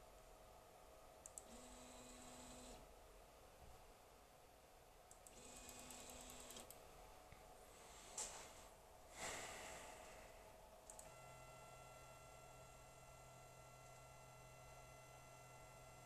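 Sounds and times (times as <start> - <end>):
electrical hum with high whine: 0.0 - 16.0.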